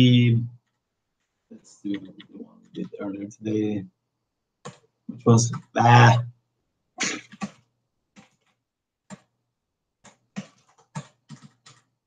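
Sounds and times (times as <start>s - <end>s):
keyboard keystrokes: 10.0s - 11.9s.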